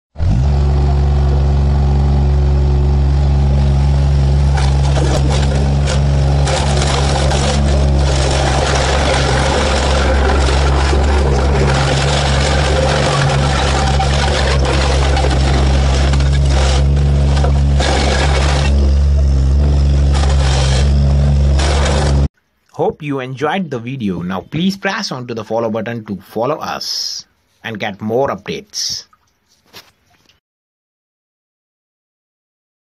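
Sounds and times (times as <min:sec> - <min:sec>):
diesel engine running: 0:00.2 - 0:22.3
glass bottles cracking and crunching: 0:04.5 - 0:18.9.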